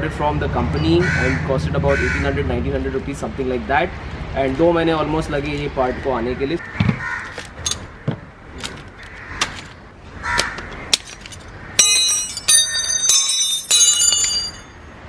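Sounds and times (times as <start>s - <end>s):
hand tools tapping on concrete: 10.4s - 14.7s
metal spanners clanking on concrete: 10.9s - 14.8s.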